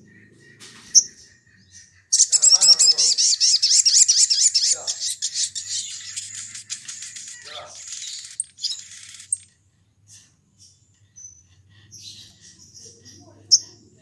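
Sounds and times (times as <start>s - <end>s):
bird singing high trilling song: 0.0s - 9.5s.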